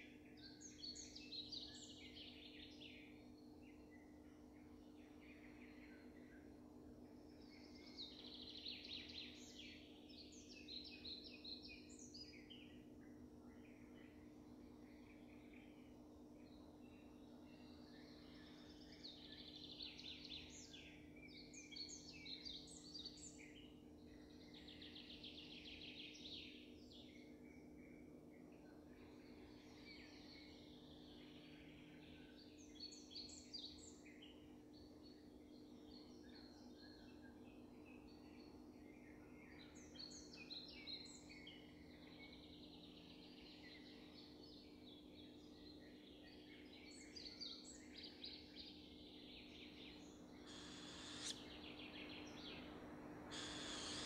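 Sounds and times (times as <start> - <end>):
songbird singing faintly: 0.0 - 54.0
steady low hum: 50.1 - 54.0.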